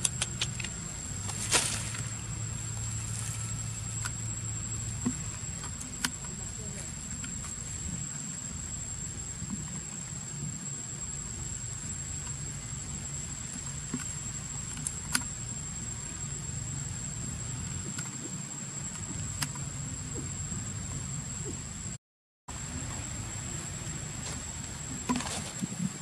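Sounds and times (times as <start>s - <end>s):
sharp clicks: 0.0s - 0.8s
high-pitched insect drone: 0.0s - 26.0s.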